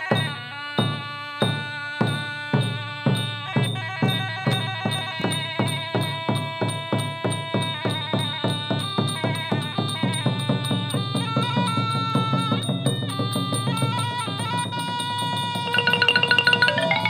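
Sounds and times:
drum strokes: 15.6s - 17.0s
held melodic tones: 15.6s - 17.0s.

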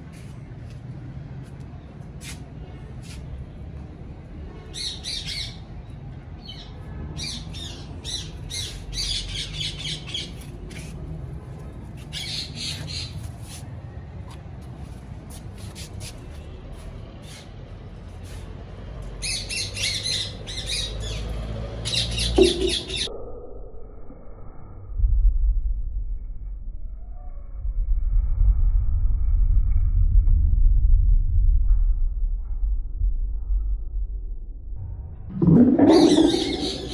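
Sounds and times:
low rumble: 23.0s - 36.9s
parakeet squawking: 35.9s - 36.9s.

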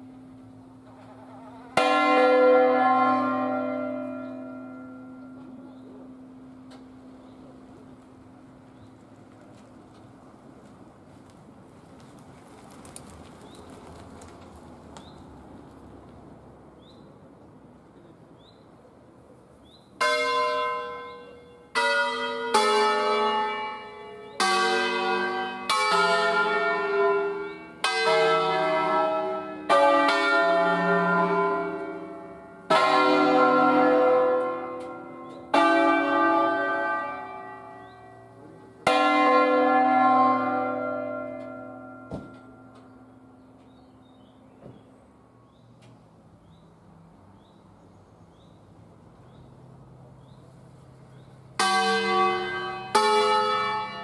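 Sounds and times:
church bells ringing: 0.0s - 8.9s, 20.0s - 44.2s, 51.2s - 54.0s.

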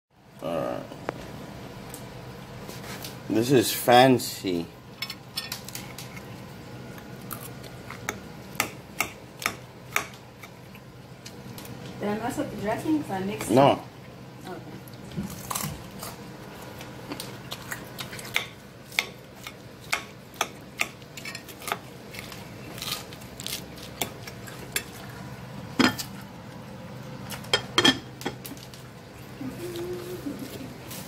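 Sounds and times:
utensils clinking and scraping plate: 21.2s - 22.4s.

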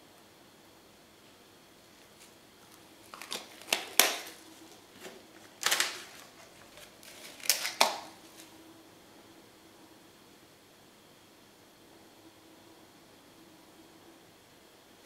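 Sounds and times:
plastic cups clicking and clattering: 3.1s - 4.4s, 5.0s - 8.2s.

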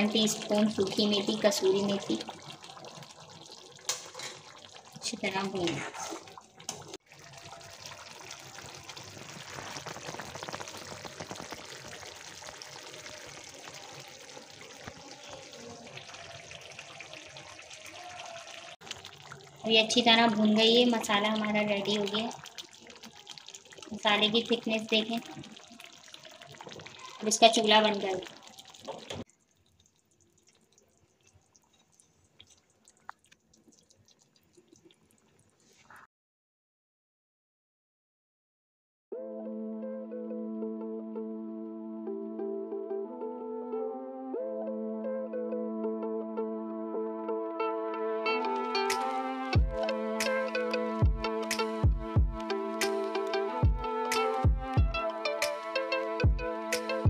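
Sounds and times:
gravy bubbling and sizzling: 0.0s - 36.1s
curry popping and ticking: 8.9s - 12.9s, 18.8s - 35.6s.

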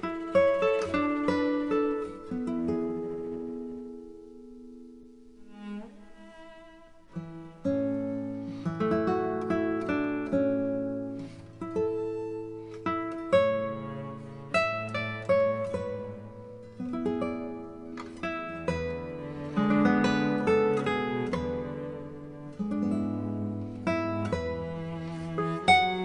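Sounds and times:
acoustic guitar music: 0.0s - 26.0s.

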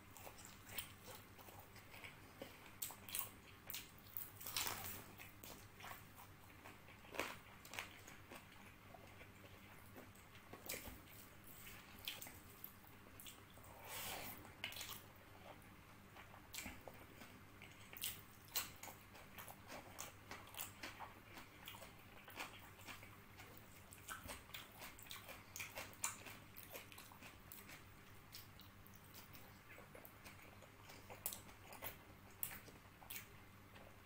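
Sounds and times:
wet chewing and mouth smacking: 16.2s - 33.9s.

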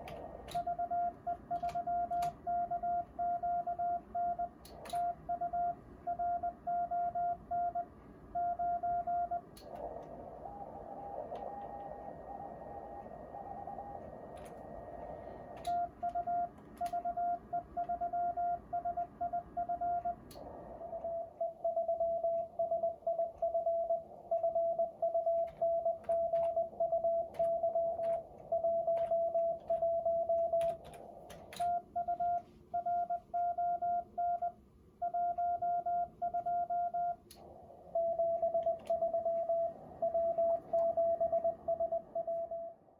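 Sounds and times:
sharp clicks: 0.0s - 0.8s, 4.6s - 5.2s, 13.0s - 17.2s, 20.0s - 32.5s, 37.2s - 41.8s
morse code beeping: 0.0s - 14.6s, 15.2s - 42.8s
radio band noise hiss: 9.4s - 15.7s.

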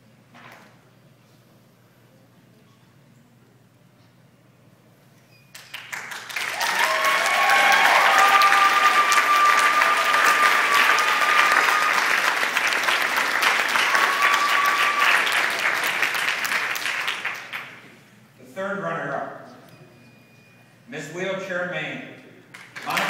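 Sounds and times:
audience clapping and cheering: 5.6s - 18.0s, 22.5s - 23.0s
high held cry: 6.5s - 15.9s.

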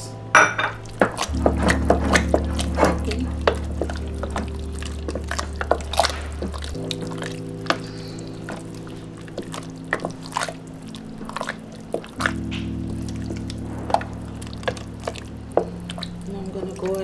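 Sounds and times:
background music low notes: 0.0s - 17.0s
spoon stirring sticky macaroni: 0.9s - 17.0s.

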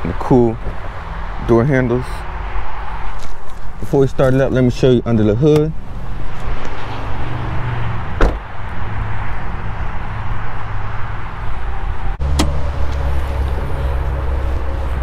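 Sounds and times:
car hood latch click: 8.2s - 8.4s, 12.3s - 12.6s.

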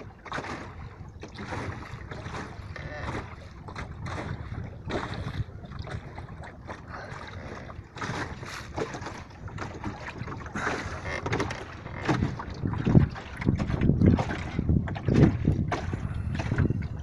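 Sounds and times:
water splashing against hull: 0.0s - 17.0s
wind buffeting microphone: 0.0s - 17.0s.

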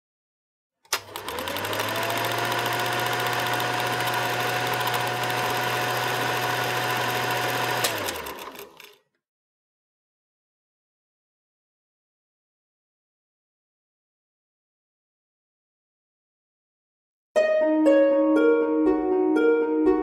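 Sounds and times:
small motorised machine whirring: 0.9s - 9.0s.

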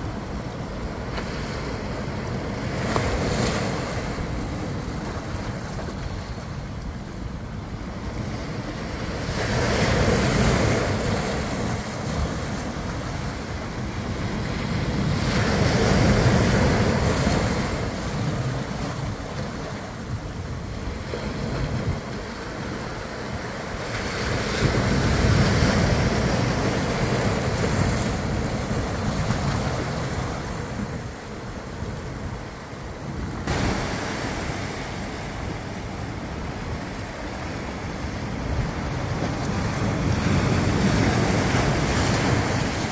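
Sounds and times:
ocean surf breaking on beach: 0.0s - 42.9s
wind rumbling on microphone: 0.0s - 42.9s.

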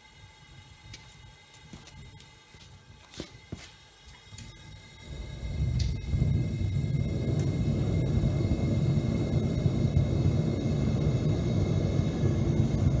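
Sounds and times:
burner flame rumbling: 4.3s - 13.0s.

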